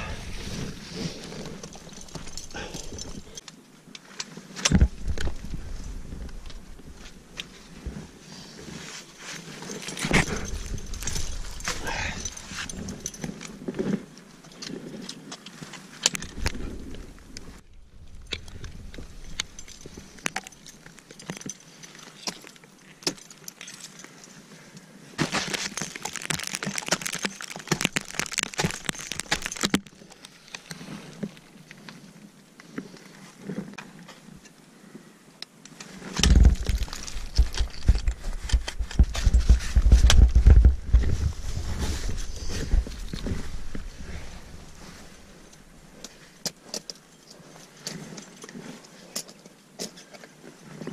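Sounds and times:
climbing hardware clinking: 0.0s - 3.5s, 9.3s - 17.0s, 18.0s - 24.4s, 25.2s - 31.4s, 36.1s - 41.3s
ice axe striking and scraping ice: 9.3s - 13.8s, 18.2s - 24.4s, 25.2s - 31.4s, 36.1s - 47.0s
low rumbling on microphone: 36.2s - 46.0s.

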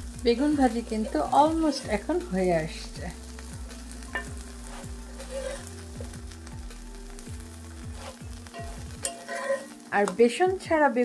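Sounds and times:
slices sizzling in oil: 0.0s - 11.0s
metal spatula scraping pan: 0.9s - 2.2s, 4.1s - 5.8s, 7.9s - 9.8s.

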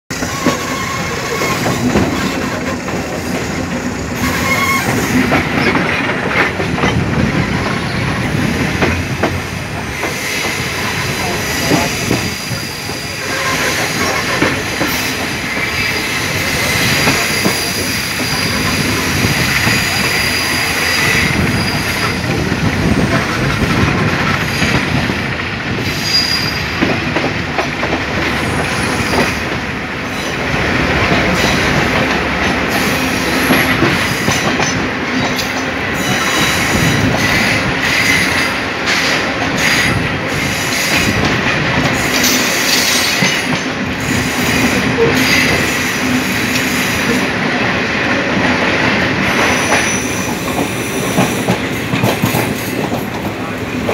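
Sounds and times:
passing passenger train: 0.1s - 53.9s
train wheels clattering on rails: 0.1s - 53.9s
high wheel squeal: 0.2s - 2.6s, 4.2s - 5.2s, 15.0s - 18.9s, 25.8s - 26.8s, 49.2s - 51.1s.

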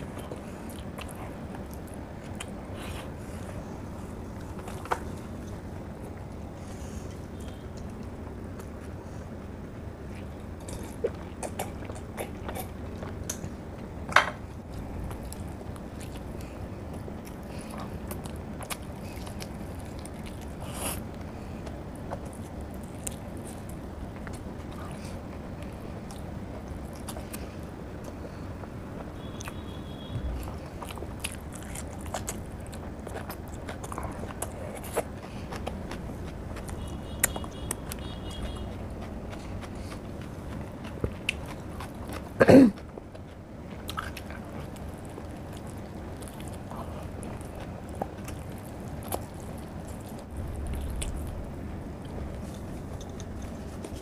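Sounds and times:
low hum: 0.0s - 54.0s
person chewing food: 0.0s - 54.0s.

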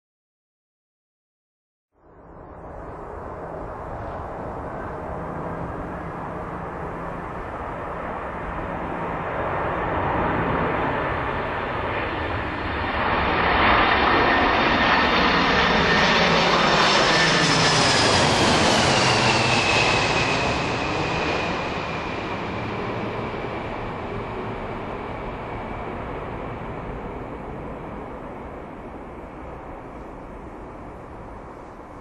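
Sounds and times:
jet engines roaring overhead: 2.3s - 32.0s.

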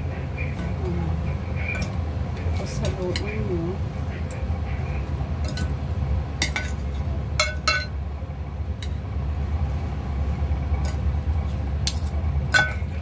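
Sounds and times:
steady low hum: 0.0s - 13.0s
metal utensil clinking on glass bowl: 11.9s - 12.9s.

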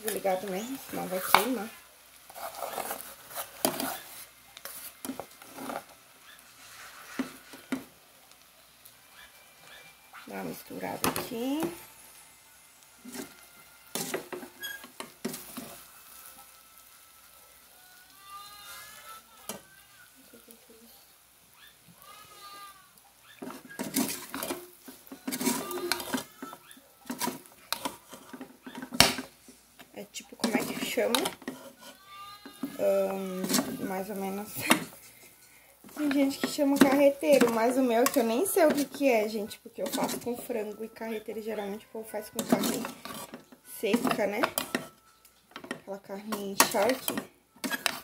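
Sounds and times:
metal cookware scraping and knocking: 23.4s - 29.3s, 30.4s - 35.0s, 35.9s - 40.5s, 42.4s - 44.9s, 45.5s - 48.0s.

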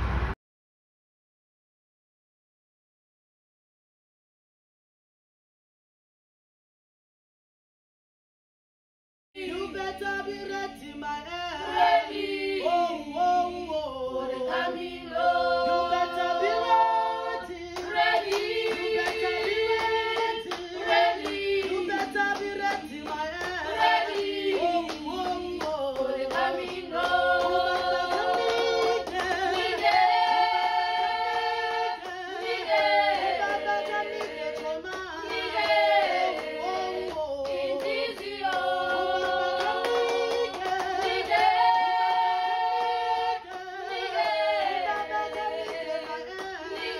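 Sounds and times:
women and girls singing a cappella: 9.4s - 46.9s
hand clapping: 17.7s - 46.9s.

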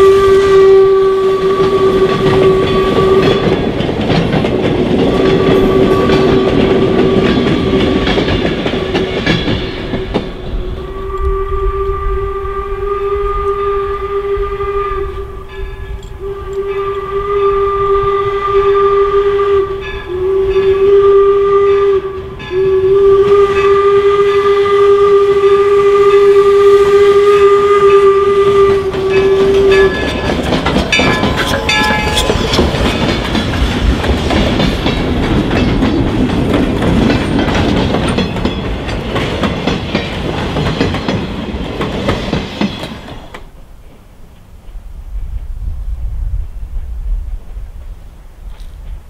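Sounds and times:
steam whistle blast: 0.0s - 3.6s, 5.1s - 8.1s, 10.0s - 33.1s
train wheels clacking on rail joints: 1.5s - 10.7s, 27.4s - 44.8s.

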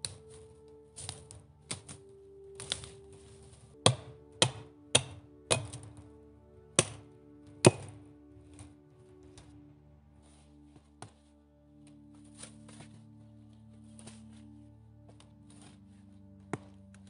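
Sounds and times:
soft background music: 0.0s - 17.0s
axe chopping wooden pole: 3.8s - 5.9s, 6.7s - 8.0s.

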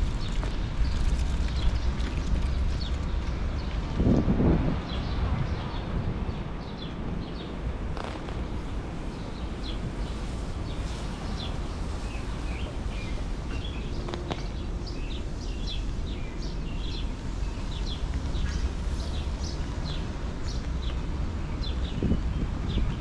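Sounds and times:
low background rumble: 0.0s - 23.0s
small birds chirping: 9.1s - 23.0s.

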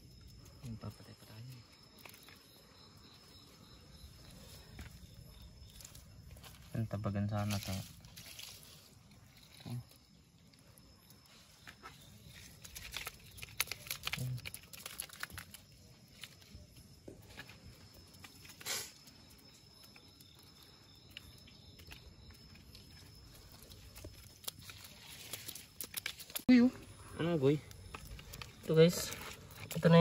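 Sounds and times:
hands rustling through wet net: 12.3s - 16.4s, 23.6s - 26.4s.

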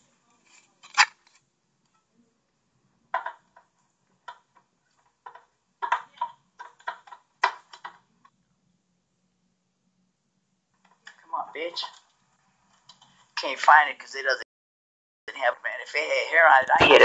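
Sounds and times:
plastic cd cases clacking: 0.5s - 1.4s.

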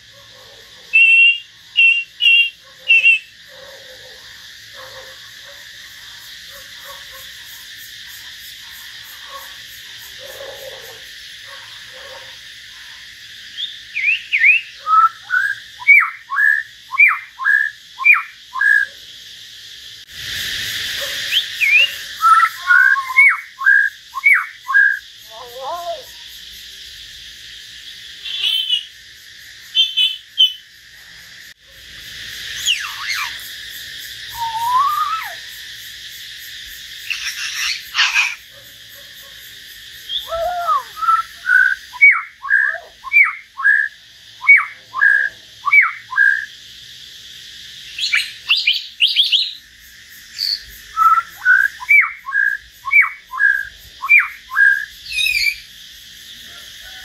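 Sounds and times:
birds whistling and singing: 1.0s - 3.3s, 13.6s - 18.9s, 21.3s - 25.4s, 32.6s - 33.4s, 34.3s - 35.4s, 40.1s - 43.9s, 47.9s - 49.6s, 50.4s - 55.7s.

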